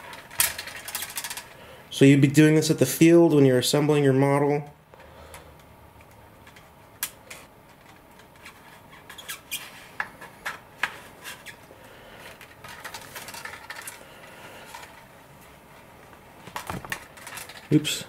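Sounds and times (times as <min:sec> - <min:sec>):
scratchy rubbing of parts: 0:06.5 - 0:14.0.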